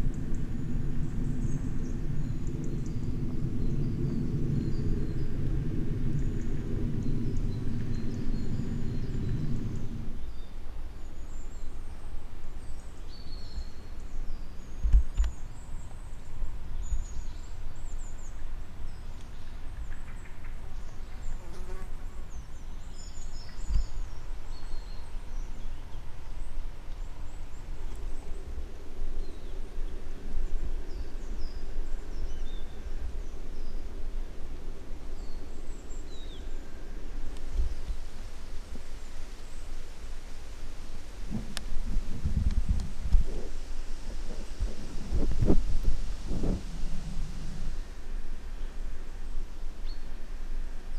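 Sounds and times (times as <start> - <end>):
low drone: 0.0 - 12.1
steady low rumble: 0.0 - 12.4, 26.2 - 50.9
small birds chirping: 0.0 - 34.0.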